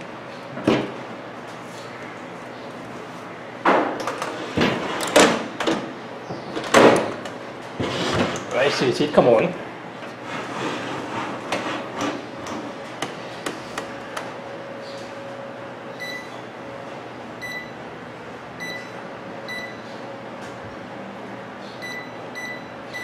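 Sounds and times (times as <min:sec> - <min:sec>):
microwave keypad beeping: 0:16.0 - 0:16.4, 0:17.4 - 0:17.8, 0:18.6 - 0:19.8, 0:21.8 - 0:23.0.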